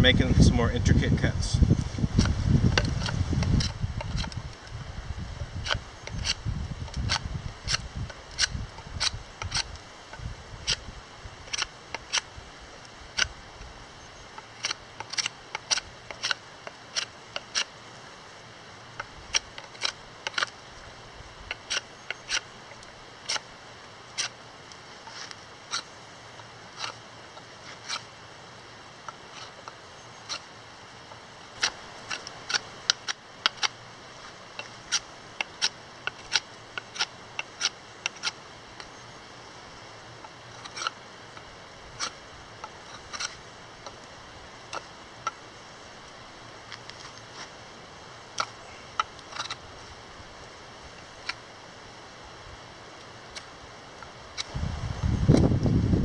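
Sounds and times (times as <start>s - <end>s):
knife carving wood clicks: 2.2s - 4.4s, 5.6s - 9.8s, 11.5s - 12.3s, 14.4s - 17.7s, 31.6s - 33.8s, 34.6s - 38.4s.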